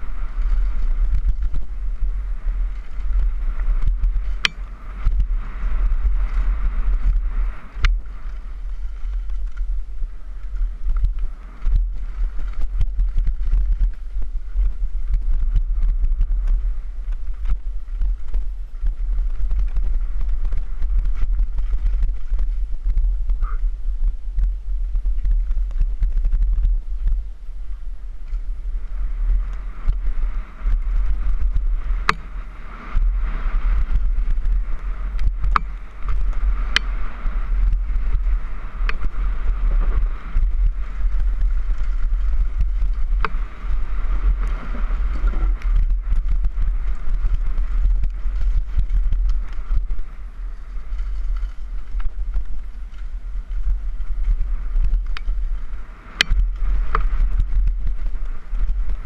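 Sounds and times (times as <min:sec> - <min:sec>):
tyres rolling on dirt: 0:00.0 - 0:23.2, 0:24.4 - 0:59.0
wind buffeting microphone: 0:00.0 - 0:59.0
bike clacking and rattling: 0:29.2 - 0:59.0.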